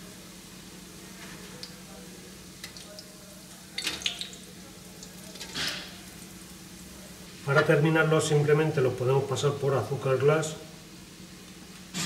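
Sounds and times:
doughnuts sizzling in frying oil: 0:00.0 - 0:12.0.

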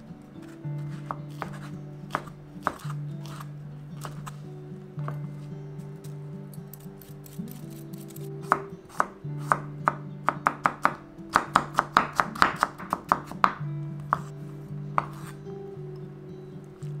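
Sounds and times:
background music: 0:00.0 - 0:17.0
knife chopping on wooden board: 0:00.4 - 0:04.4, 0:08.4 - 0:14.3, 0:15.0 - 0:15.4.

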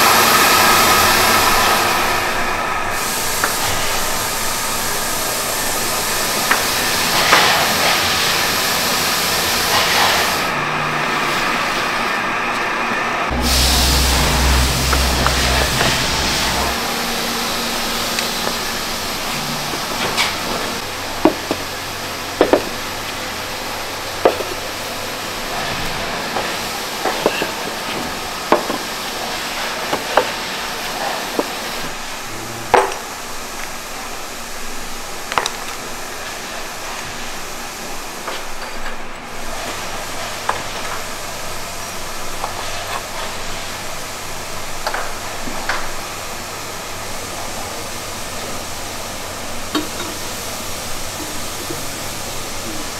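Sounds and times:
factory noise hiss: 0:00.0 - 0:52.9
kiln shelves knocking and clacking: 0:22.4 - 0:22.8.

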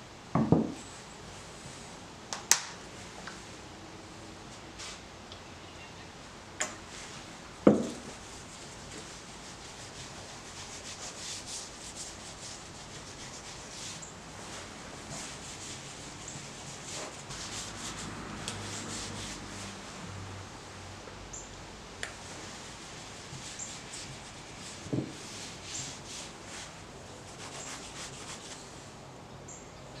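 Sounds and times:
hand rubbing finish on wood: 0:06.9 - 0:19.9, 0:22.2 - 0:28.7.

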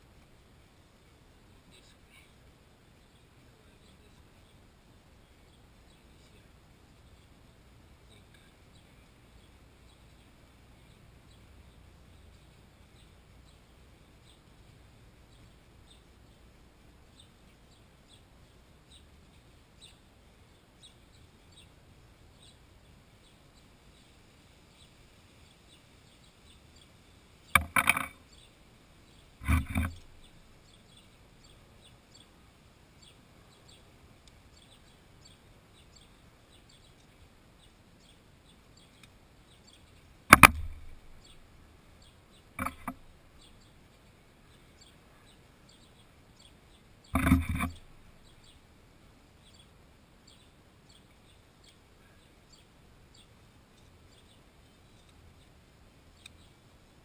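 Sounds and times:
faint bird chirping: 0:00.0 - 0:57.0
metal part landing on wood: 0:27.6 - 0:28.2, 0:29.4 - 0:30.2, 0:40.3 - 0:41.1, 0:42.6 - 0:43.0, 0:47.2 - 0:47.9.

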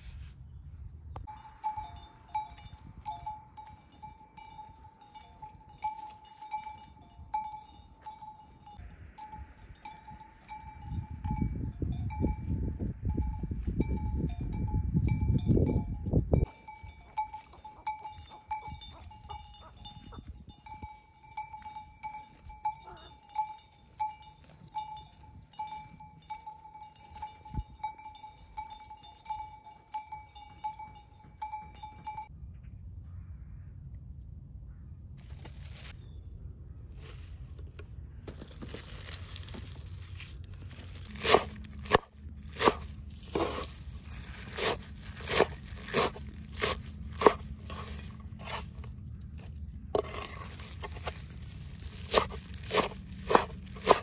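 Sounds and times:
livestock bells clinking: 0:01.3 - 0:32.4.

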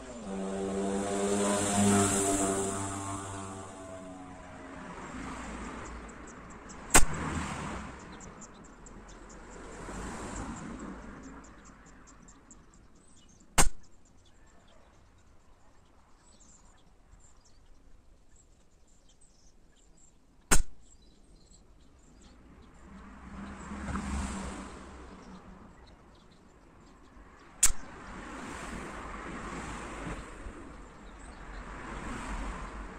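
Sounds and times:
air rifle shot crack: 0:06.9 - 0:07.2, 0:13.6 - 0:13.8, 0:20.5 - 0:20.8.

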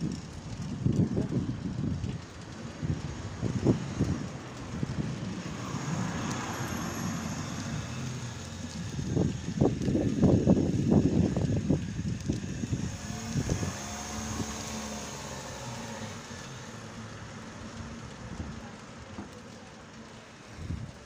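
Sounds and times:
wind buffeting microphone: 0:00.0 - 0:16.4, 0:20.5 - 0:21.0
car engine moving away: 0:00.8 - 0:20.2.

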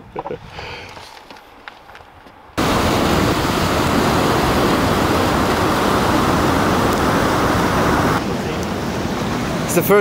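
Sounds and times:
flowing river water: 0:02.6 - 0:10.0
whitewater rushing: 0:02.6 - 0:10.0.

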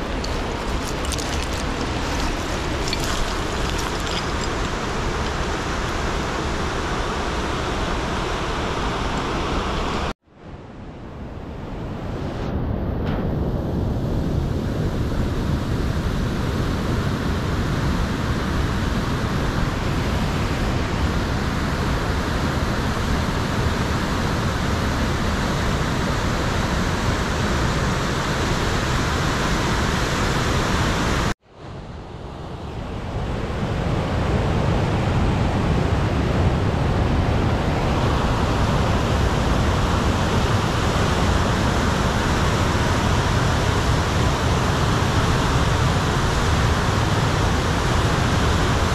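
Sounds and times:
river rapids roaring: 0:00.0 - 0:10.1, 0:33.8 - 0:48.9.

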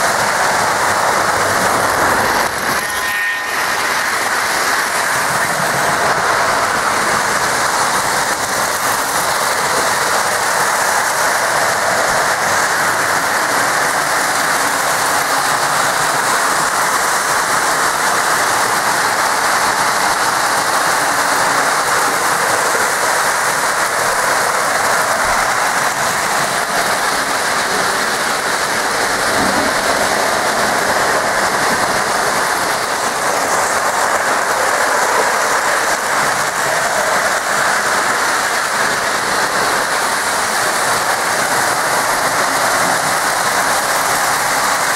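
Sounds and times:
model trains running on track: 0:00.0 - 0:44.9.

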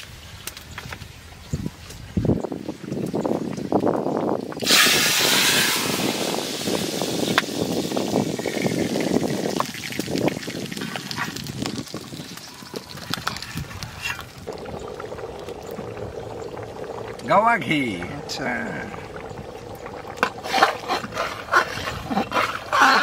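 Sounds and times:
oil pops and crackles: 0:00.0 - 0:01.1, 0:02.9 - 0:23.0
chillies sizzling in hot oil: 0:04.6 - 0:21.7.

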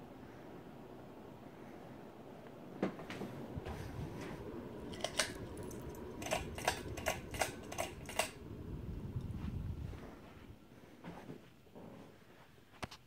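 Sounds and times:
ceiling fan whirring: 0:00.0 - 0:13.0.

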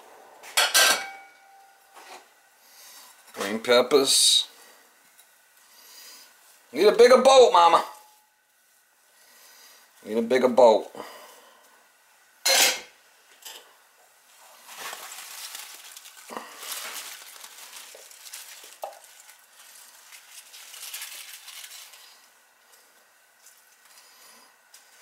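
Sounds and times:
sprouts rustling and tumbling: 0:14.3 - 0:24.0.

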